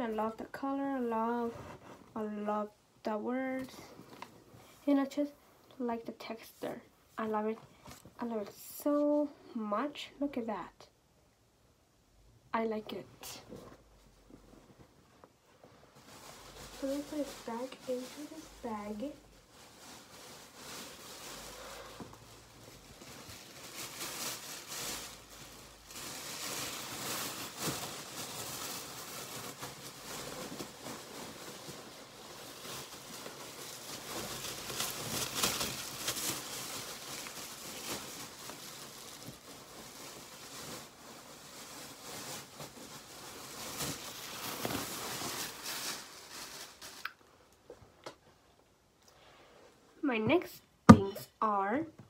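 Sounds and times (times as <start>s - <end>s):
shopping bag rustling and crinkling: 15.5s - 47.3s.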